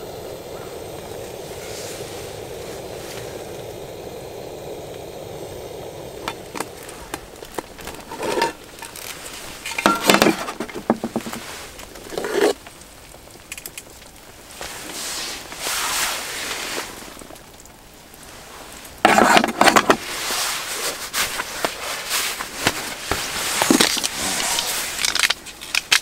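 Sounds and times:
steady rushing noise: 0:00.0 - 0:13.3
metal tin clattering: 0:07.8 - 0:09.0, 0:09.6 - 0:11.4.

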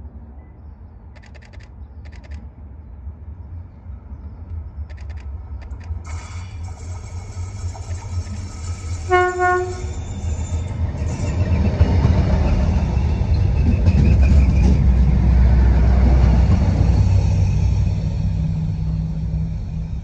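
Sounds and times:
train engines and wheels rumbling: 0:00.0 - 0:20.0
train horn toot: 0:08.9 - 0:10.8.

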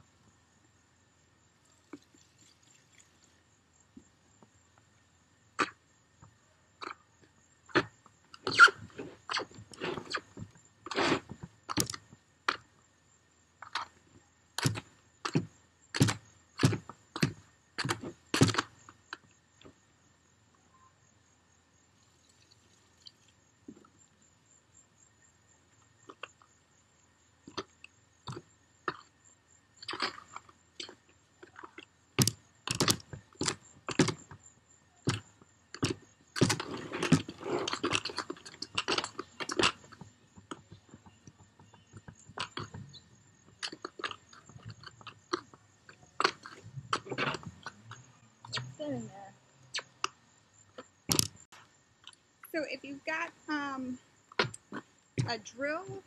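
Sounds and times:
gritty mortar scraping: 0:35.8 - 0:40.0.

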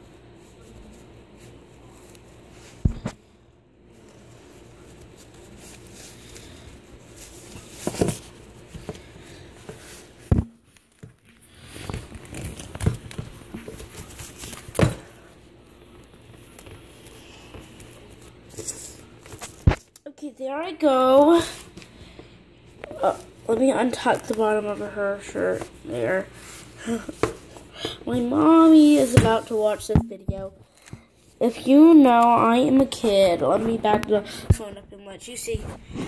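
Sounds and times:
fabric rustling: 0:03.8 - 0:15.2.

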